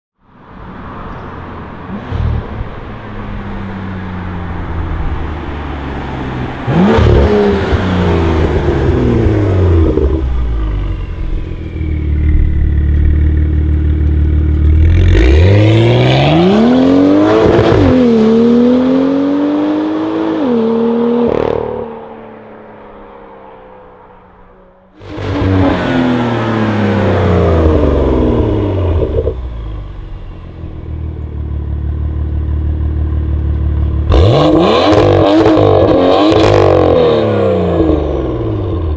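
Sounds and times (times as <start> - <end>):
car engine accelerating hard: 4.6 - 38.9.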